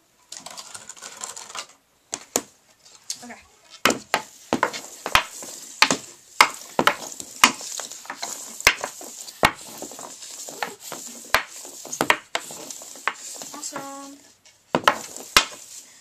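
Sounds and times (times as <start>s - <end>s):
blade and puck scraping on pad: 3.7s - 16.0s
hockey stick clacking on puck: 3.8s - 13.9s, 14.8s - 15.6s.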